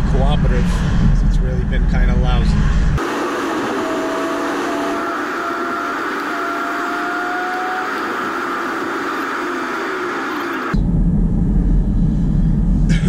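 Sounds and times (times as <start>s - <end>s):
car road and wind noise: 0.0s - 13.0s
faint whine: 0.0s - 13.0s
deep cabin rumble: 7.6s - 13.0s.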